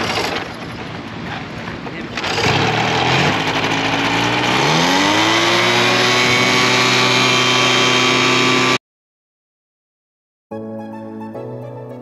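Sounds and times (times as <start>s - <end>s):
propeller engine revving: 2.0s - 8.8s.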